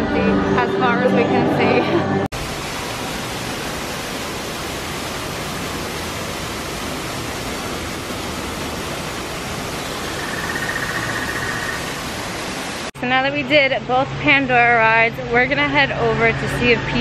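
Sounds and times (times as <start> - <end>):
waterfall hissing: 2.4 - 12.9.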